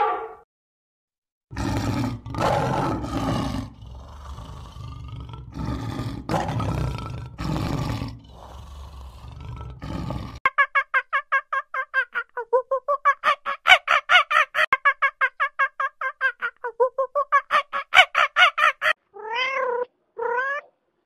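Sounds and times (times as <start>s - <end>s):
lion grunting: 1.5s - 10.4s
lion roaring: 1.5s - 10.4s.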